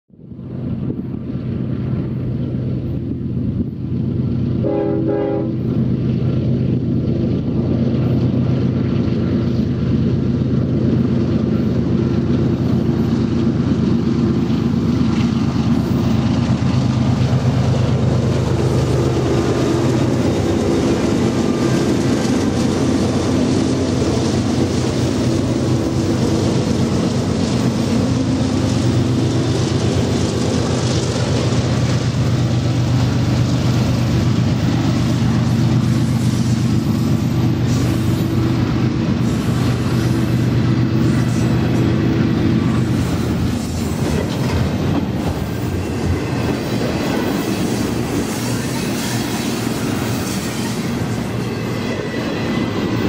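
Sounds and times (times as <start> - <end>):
train wheels rumbling on rails: 0.1 - 53.0
diesel locomotives under load: 0.2 - 53.0
train horn blast: 4.6 - 5.7.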